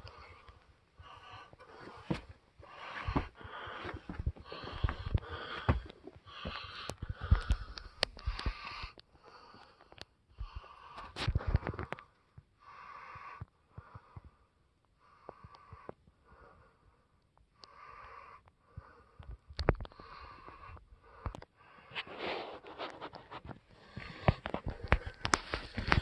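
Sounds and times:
heavy rapid breathing: 0.0s - 12.0s, 18.0s - 26.0s
footsteps: 1.8s - 7.8s, 22.2s - 26.0s.

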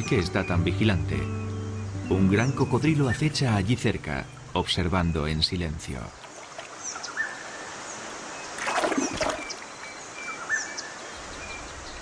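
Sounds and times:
birds chirping and whistling: 0.0s - 4.8s, 6.8s - 7.7s, 8.3s - 12.0s
water flowing: 1.9s - 10.5s
water splash: 6.2s - 7.0s, 8.6s - 9.9s.

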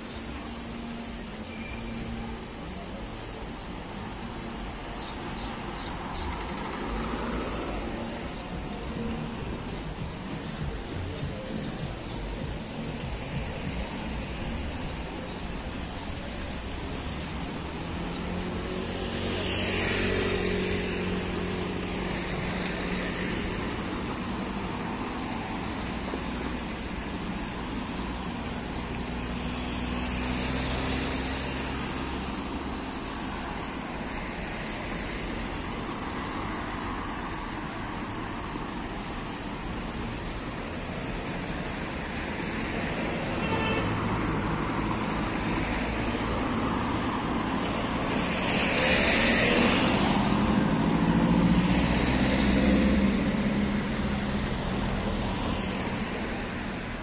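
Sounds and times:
cars passing on road: 0.0s - 57.0s.

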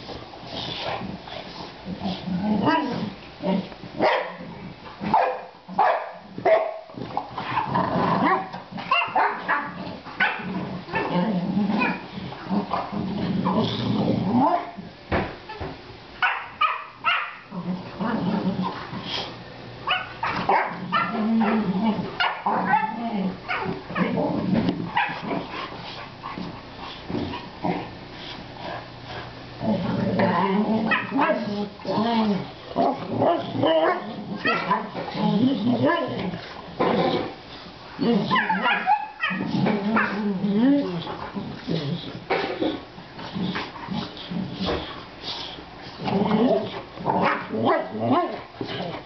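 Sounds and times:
dogs growling: 0.0s - 5.2s, 6.2s - 14.9s, 17.4s - 19.4s, 20.2s - 49.0s
dogs barking and yipping: 4.0s - 4.4s, 5.1s - 11.2s, 16.2s - 17.5s, 19.8s - 24.2s, 24.9s - 25.5s, 30.8s - 31.6s, 32.8s - 35.1s, 38.2s - 40.2s.

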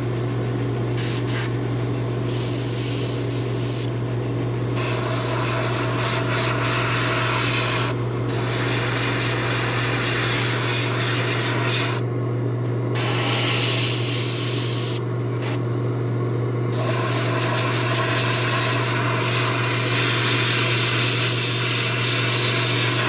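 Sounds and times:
steady low hum: 0.0s - 21.4s
airbrush air hiss: 2.3s - 3.9s.

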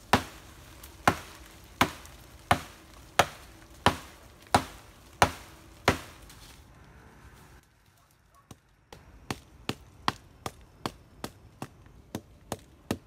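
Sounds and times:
blade chopping into wood: 0.1s - 6.2s.

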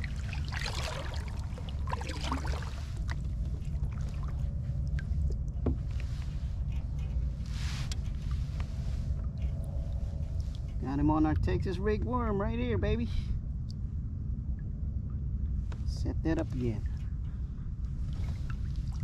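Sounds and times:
paddle strokes splashing water: 0.0s - 4.5s
steady low rumble: 0.0s - 19.0s.

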